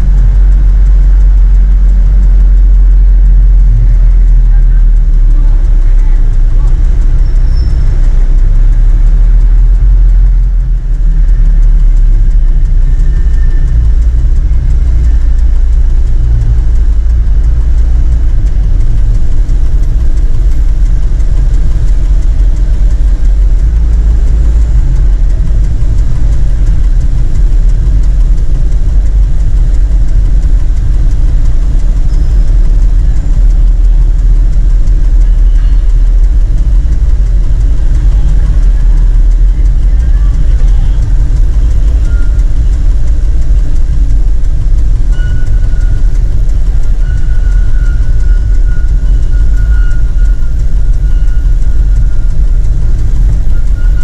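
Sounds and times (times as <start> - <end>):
truck engine low rumble: 0.0 - 54.0.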